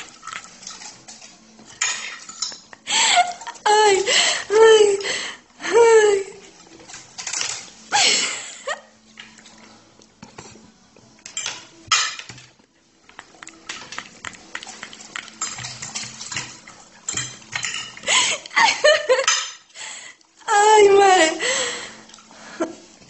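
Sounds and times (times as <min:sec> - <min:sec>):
cutlery clinking on plate: 0:00.0 - 0:02.8, 0:06.7 - 0:07.8, 0:11.2 - 0:12.5, 0:13.1 - 0:18.1, 0:19.1 - 0:19.7
person's voice: 0:03.7 - 0:05.0, 0:05.6 - 0:06.4, 0:20.5 - 0:21.5.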